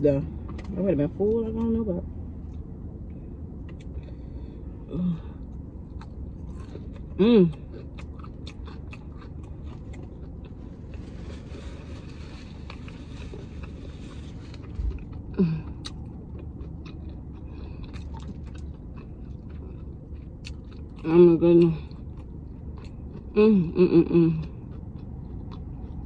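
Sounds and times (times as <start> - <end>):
chewing and wet mouth clicks: 5.9 - 10.6, 14.5 - 21.1, 21.9 - 23.3, 24.4 - 26.0
person humming: 23.4 - 24.4.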